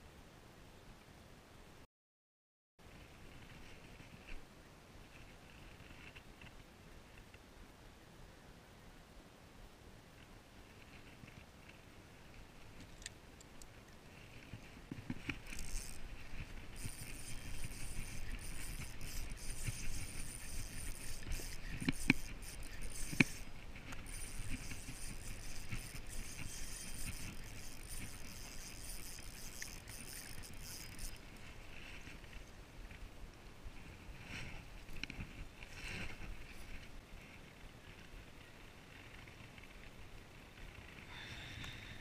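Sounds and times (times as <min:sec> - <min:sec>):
rod and reel clicks and knocks: 0:14.3 - 0:33.0
spinning reel whirring: 0:15.1 - 0:31.4.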